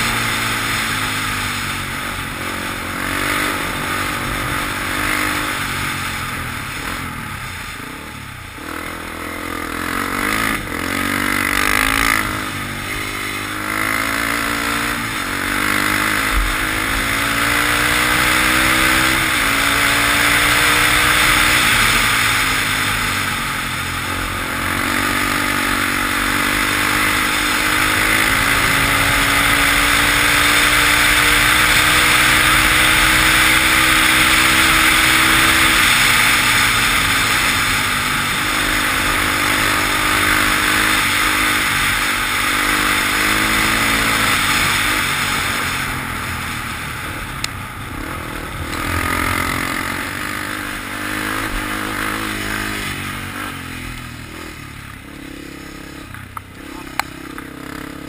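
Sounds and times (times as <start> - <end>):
off-road vehicle engine revving: 0.0 - 58.0.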